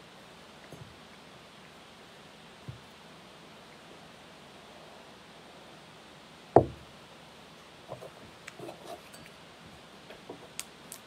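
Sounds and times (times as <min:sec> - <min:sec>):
metal chalice knocking on table: 0:06.6 - 0:06.8.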